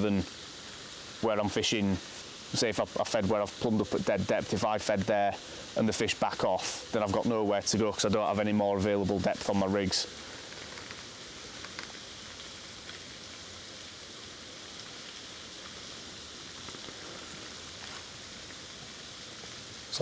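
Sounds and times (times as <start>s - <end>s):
even outdoor hiss: 0.0s - 20.0s
faint ticks: 10.3s - 13.5s.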